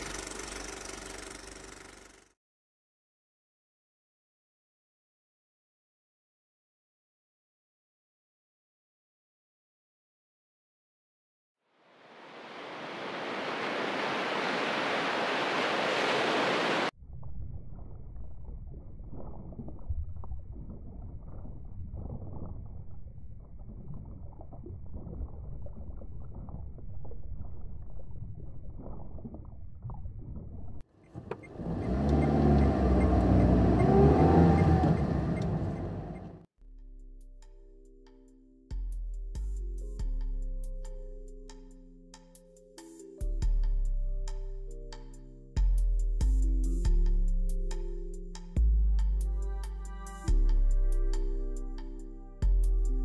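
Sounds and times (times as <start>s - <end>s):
muffled underwater rumble: 17.0s - 30.8s
car driving on road: 31.0s - 36.5s.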